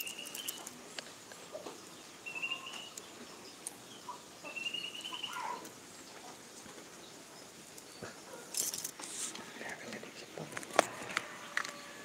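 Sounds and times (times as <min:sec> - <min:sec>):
bird whistling: 0:02.2 - 0:03.0, 0:04.5 - 0:05.6.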